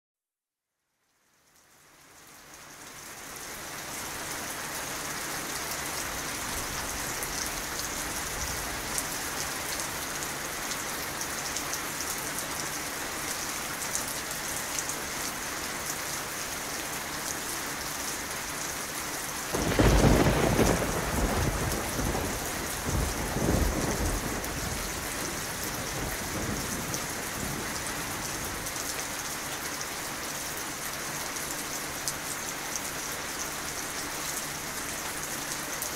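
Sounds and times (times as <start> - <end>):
steady rain falling: 0.8 - 35.9
thunder rumbling: 19.5 - 28.6.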